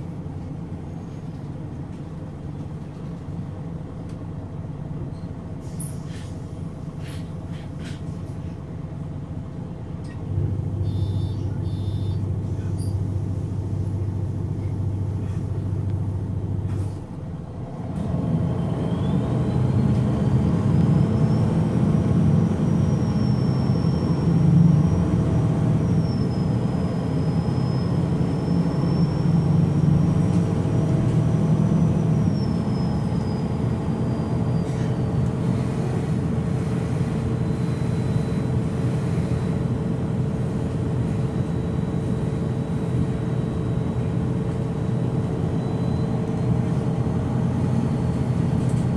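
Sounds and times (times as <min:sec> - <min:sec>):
bus diesel engine idling: 0:00.0 - 0:48.9.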